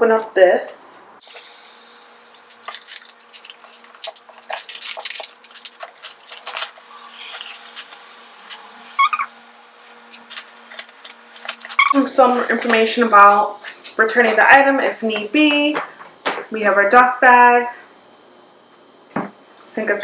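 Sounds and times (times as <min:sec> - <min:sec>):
paper crinkling and rustling: 0:02.3 - 0:08.6, 0:09.8 - 0:12.1
brief pitched sound: 0:09.0 - 0:09.3.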